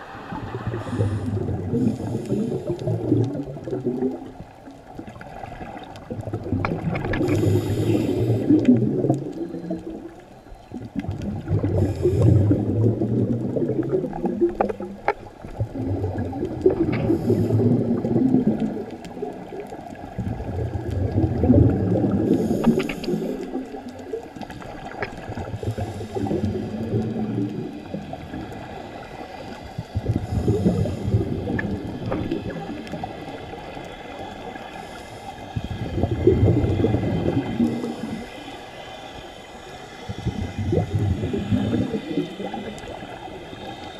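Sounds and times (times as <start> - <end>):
regulator inhalation hiss: 0.0 - 3.2, 7.2 - 8.7, 11.7 - 12.7, 17.0 - 17.9, 22.2 - 23.7, 25.5 - 43.9
exhaled bubbles gurgling underwater: 0.0 - 43.9.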